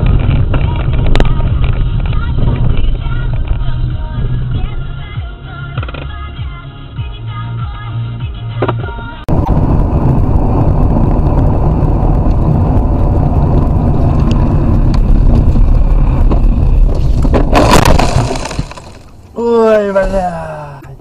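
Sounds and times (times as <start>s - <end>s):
car interior road rumble: 0.0s - 21.0s
music: 0.6s - 9.3s
car crash: 9.3s - 20.5s.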